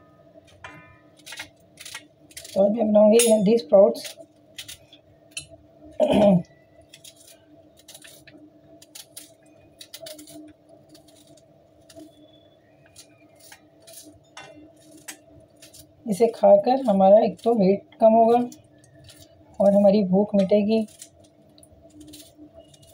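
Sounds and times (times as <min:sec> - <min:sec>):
pieces clinking into steel bowl: 0:03.2 - 0:03.6.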